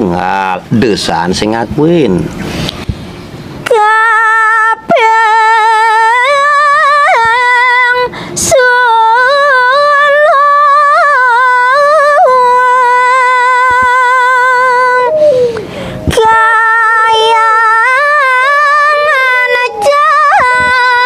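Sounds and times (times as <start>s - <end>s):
singer breathing: 2.4s - 3.2s, 8.1s - 8.4s, 15.1s - 16.1s
woman singing unaccompanied: 3.6s - 21.0s.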